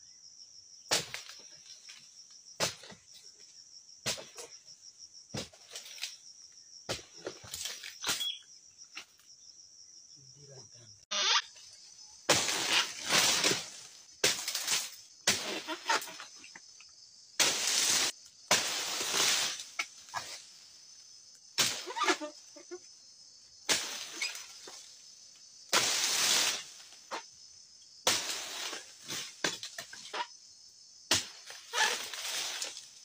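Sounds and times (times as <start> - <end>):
insects chirring: 0.0 - 33.0
sickle cutting strokes: 31.1 - 33.0.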